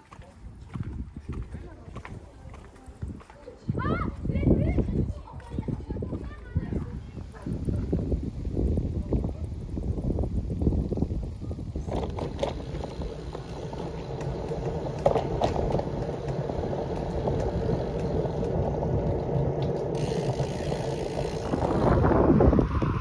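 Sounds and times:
wind rushing on microphone: 0.4s - 23.0s
bicycle rattling and knocking: 11.7s - 23.0s.

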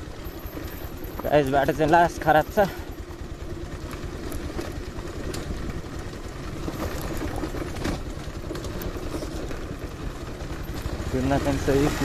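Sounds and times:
motorcycle engine running at low speed: 0.0s - 12.0s
clicks and knocks over loose stones: 3.9s - 9.9s.

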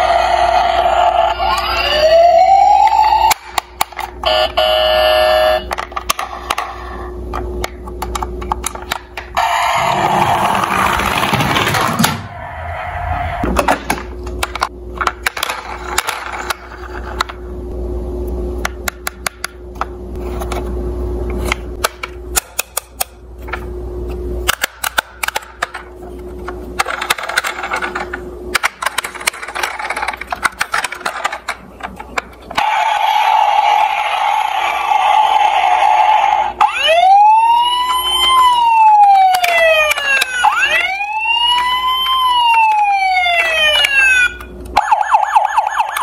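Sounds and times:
plastic toy cars clattering: 10.6s - 12.2s, 26.8s - 32.6s.

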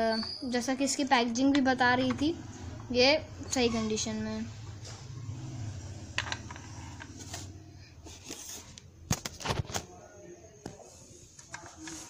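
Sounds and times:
plastic toy car clicks and knocks: 6.2s - 7.2s.

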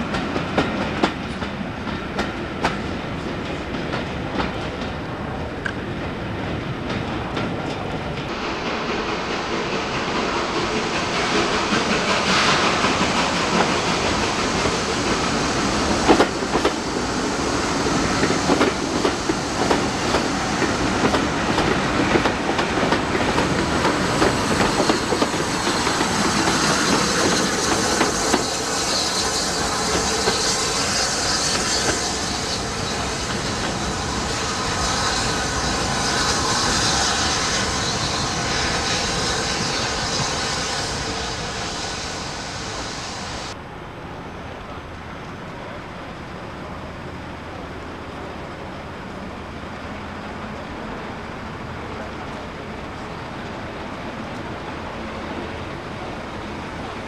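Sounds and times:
train wheels clicking over rail joints: 0.0s - 5.9s, 6.5s - 41.5s
steam hissing: 8.3s - 43.6s.

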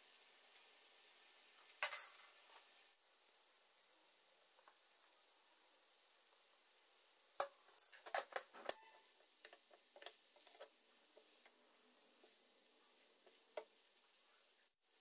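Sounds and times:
spatula tapping and scraping pan: 8.7s - 14.0s.

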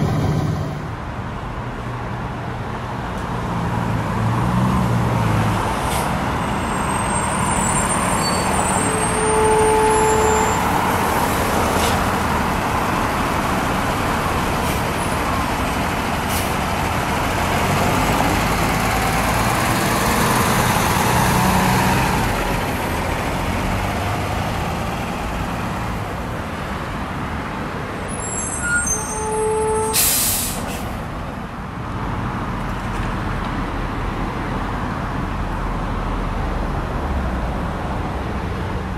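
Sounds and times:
air brakes hissing: 16.2s - 16.6s, 28.2s - 31.0s.

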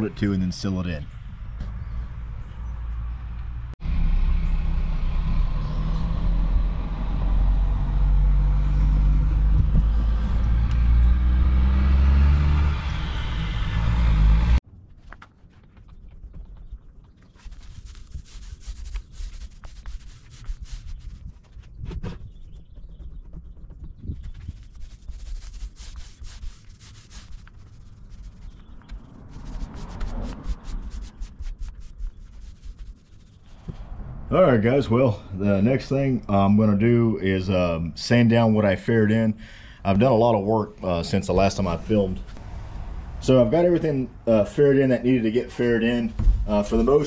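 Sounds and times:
loud low rumble with hum: 1.0s - 14.6s
rubbing strokes: 17.3s - 33.8s.

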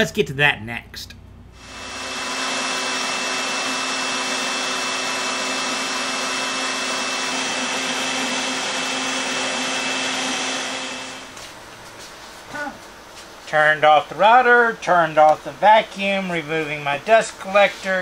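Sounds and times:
router whirring: 1.6s - 11.4s
shop vacuum: 1.6s - 12.8s.

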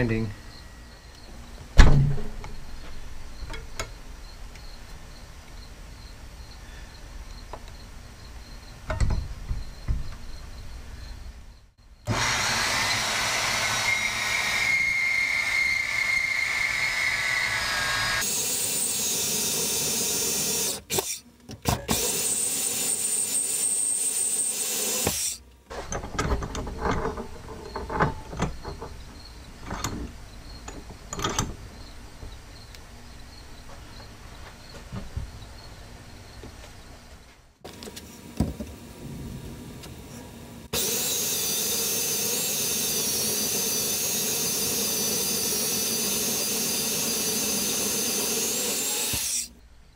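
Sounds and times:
metal knocks and clicks: 8.9s - 10.3s, 25.8s - 32.4s
band saw cutting steel: 12.1s - 21.2s, 21.9s - 25.4s, 40.7s - 49.6s.

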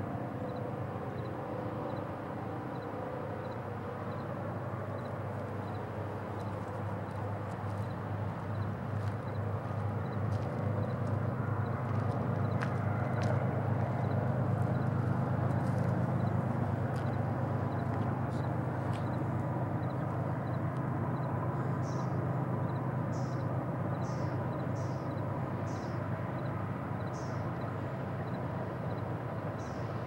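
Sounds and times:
steady low rumble: 4.5s - 22.1s.

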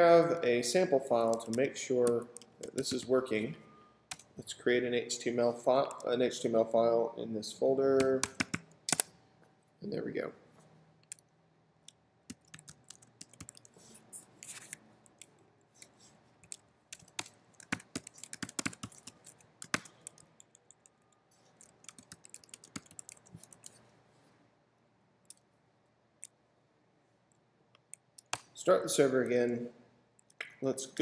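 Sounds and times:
computer keyboard typing: 1.2s - 3.0s, 8.0s - 9.1s, 12.3s - 15.4s, 16.4s - 23.8s.

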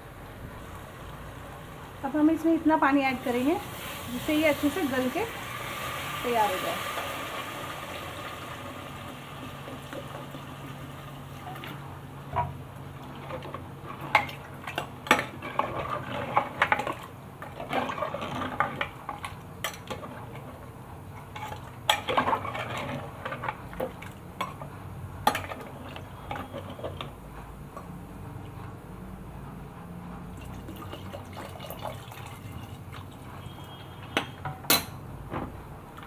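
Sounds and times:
metal ladle scraping a pot: 15.1s - 18.9s, 21.4s - 23.6s.

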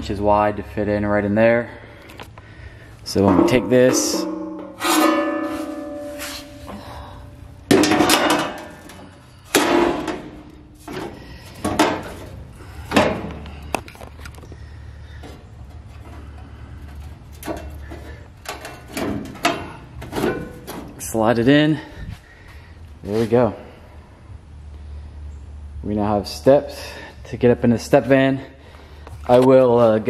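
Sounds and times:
sharp ringing metallic knocks: 3.1s - 6.8s
sheet steel clanking and scraping: 3.1s - 22.2s.

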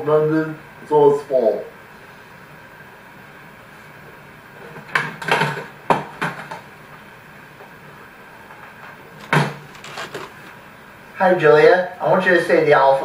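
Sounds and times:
puppets knocking and rattling: 9.2s - 10.5s.

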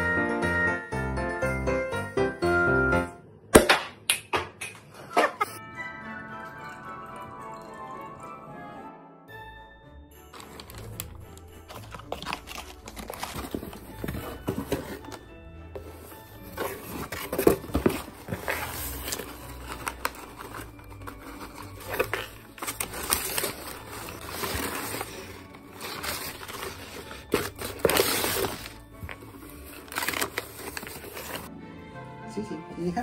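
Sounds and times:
background music: 0.0s - 3.6s, 5.3s - 33.0s
paper and cardboard rustling: 10.3s - 31.5s.

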